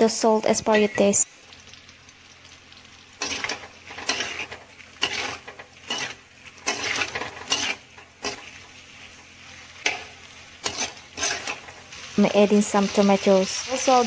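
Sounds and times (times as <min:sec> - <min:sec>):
metal spatula scraping wok: 0:03.2 - 0:12.2.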